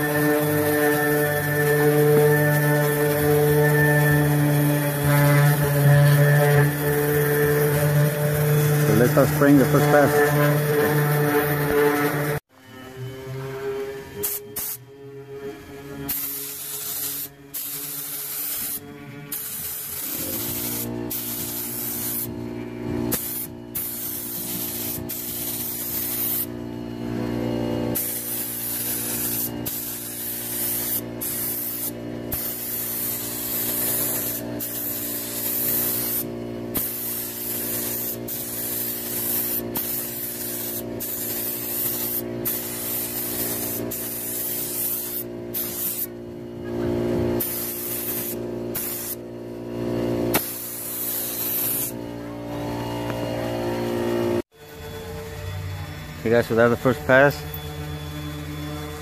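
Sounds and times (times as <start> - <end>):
low hum: 0.0 - 59.0
paint spray gun hissing: 16.1 - 22.3, 23.1 - 26.5, 28.0 - 46.1, 47.4 - 49.2, 50.3 - 52.0.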